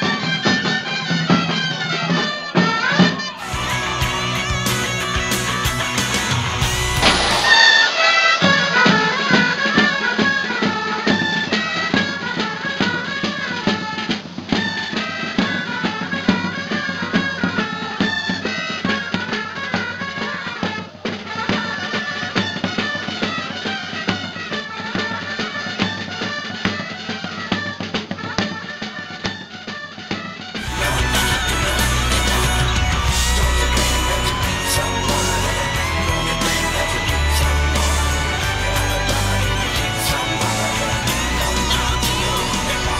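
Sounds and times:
high busy folk melody: 0:00.0 - 0:13.6, 0:30.6 - 0:42.9
steady drumming: 0:00.0 - 0:20.2, 0:30.5 - 0:42.9.

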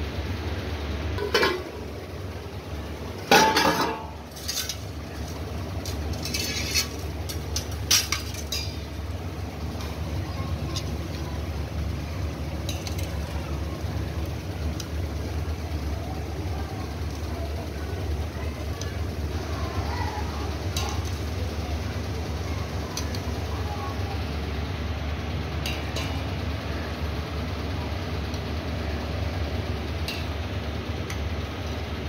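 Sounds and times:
metal ladle clinking and scraping: 0:06.1 - 0:08.8.

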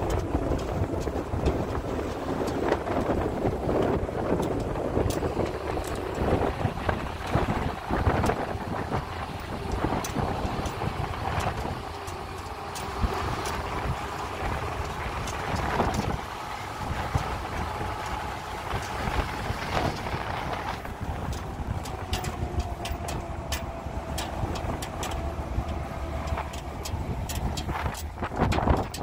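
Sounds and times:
faint engine whine: 0:00.0 - 0:29.0
light rattles and clicks: 0:00.0 - 0:29.0
vehicle engine and road rumble: 0:00.0 - 0:29.0.

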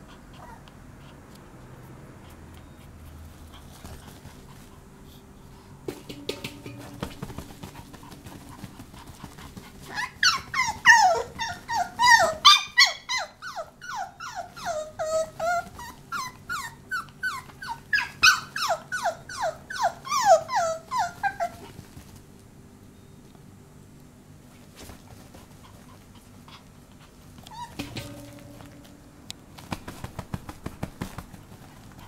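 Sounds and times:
puppy yapping: 0:09.6 - 0:22.0, 0:27.5 - 0:28.9.

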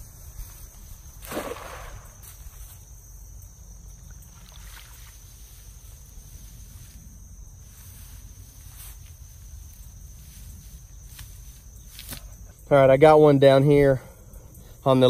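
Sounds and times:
net splashing into water: 0:01.2 - 0:02.5, 0:04.3 - 0:05.2
water sloshing and dripping: 0:03.9 - 0:05.4.

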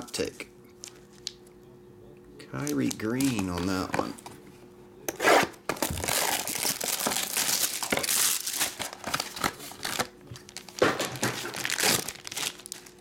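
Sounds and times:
plastic bag crinkling: 0:05.8 - 0:13.0.

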